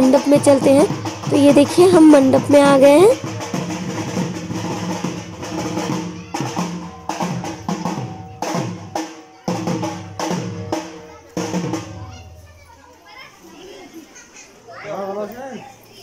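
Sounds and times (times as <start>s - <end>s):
barrel drum beaten with sticks: 0.0s - 12.4s.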